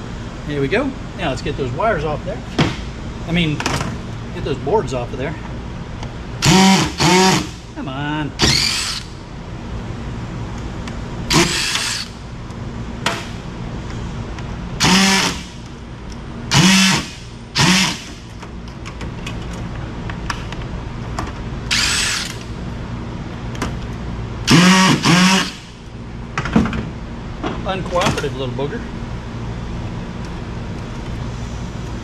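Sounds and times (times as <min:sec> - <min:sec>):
cordless drill spinning: 0:06.4 - 0:07.5, 0:08.4 - 0:09.1, 0:11.3 - 0:12.1, 0:14.8 - 0:15.5, 0:16.5 - 0:18.1, 0:21.7 - 0:22.4, 0:24.5 - 0:25.6.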